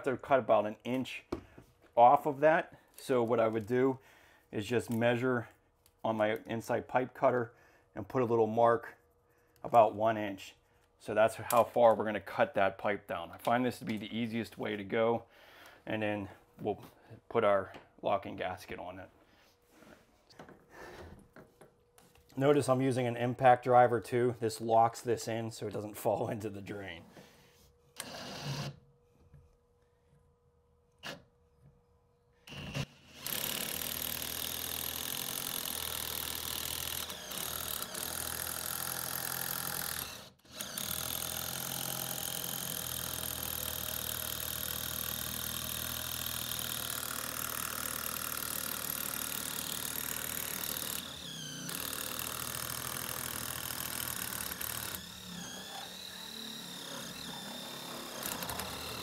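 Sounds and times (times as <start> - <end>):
impact driver spinning pipe cutter: 32.5 - 59.0.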